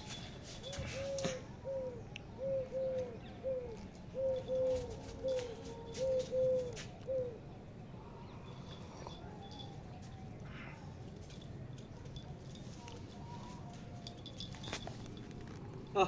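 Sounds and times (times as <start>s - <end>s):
dove cooing: 0.6s - 9.8s.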